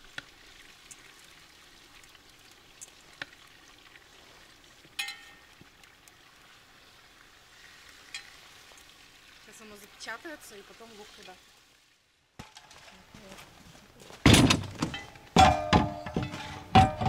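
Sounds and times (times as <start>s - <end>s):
food sizzling in a pot: 1.6s - 12.0s
metal clink: 5.0s - 5.5s, 14.8s - 17.0s.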